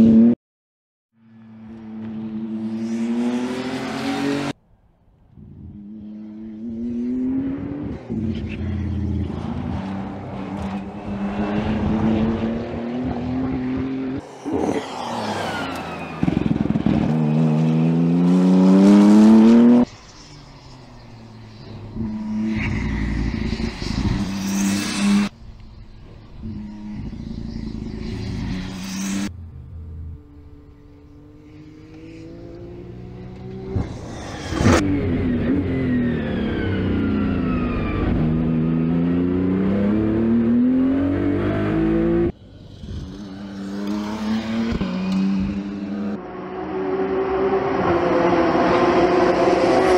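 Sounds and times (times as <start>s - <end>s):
race car accelerating hard: 5.6s - 20.1s, 31.1s - 49.9s.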